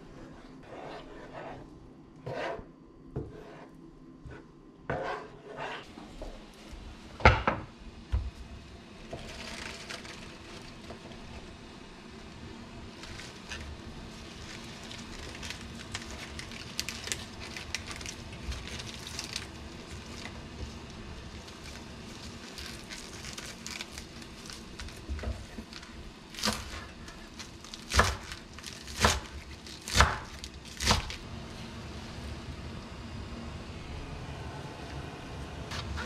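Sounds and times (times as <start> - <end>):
spinach leaves rustling: 12.9 - 31.2.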